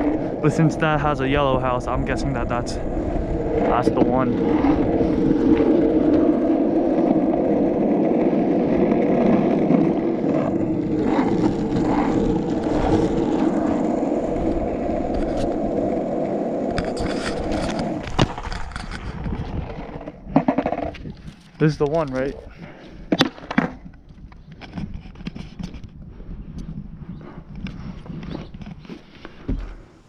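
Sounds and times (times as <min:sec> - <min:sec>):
skateboard wheels rolling on asphalt: 0:00.0 - 0:30.0
skateboard scuffs: 0:03.2 - 0:30.0
skateboard knock: 0:20.3 - 0:21.0.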